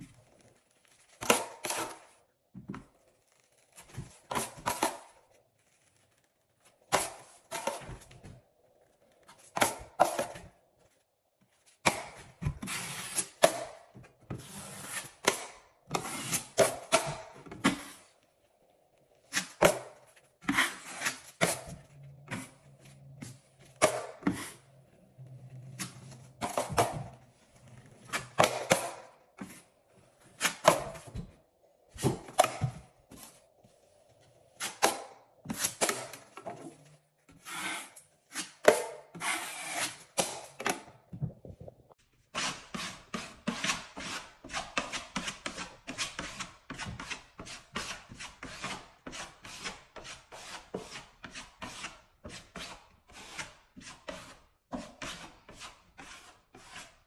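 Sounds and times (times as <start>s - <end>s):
drywall knife scraping: 11.9s - 18.1s, 19.2s - 31.3s, 34.6s - 40.6s, 42.3s - 57.0s
putty knife scraping quickly: 14.4s - 18.0s, 19.3s - 22.6s, 37.3s - 40.5s, 42.4s - 57.0s.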